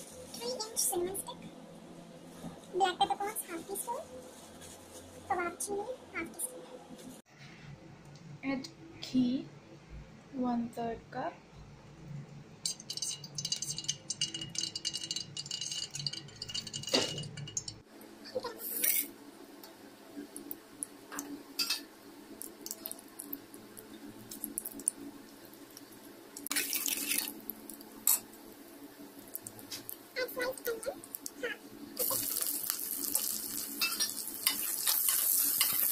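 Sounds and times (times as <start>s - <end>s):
ghee sizzling and crackling: 12.6s - 35.9s
spices frying with sharp crackles: 12.6s - 35.9s.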